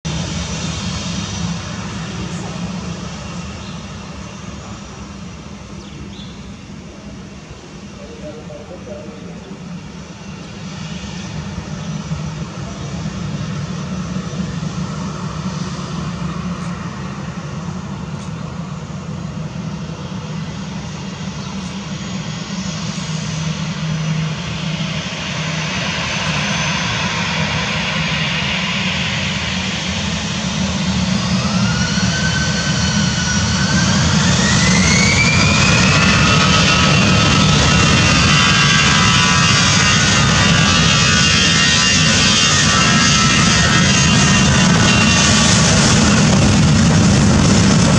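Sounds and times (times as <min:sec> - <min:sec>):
jet engines rumbling: 0:00.0 - 0:47.9
jet engine whine rising: 0:00.1 - 0:47.9.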